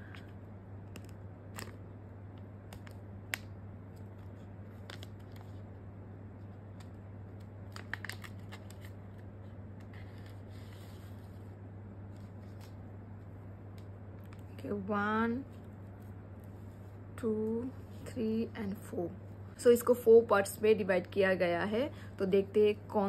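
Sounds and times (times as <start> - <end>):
steady low hum: 0.0 - 23.0
plastic sachet rustling: 6.8 - 9.3.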